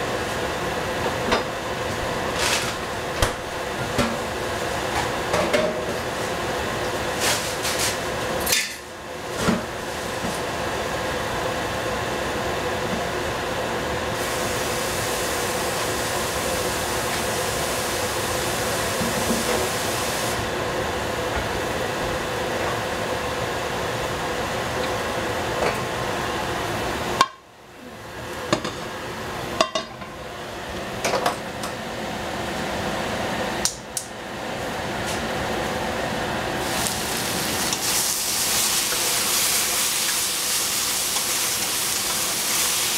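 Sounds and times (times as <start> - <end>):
frying hiss: 14.1 - 20.5, 36.5 - 42.9.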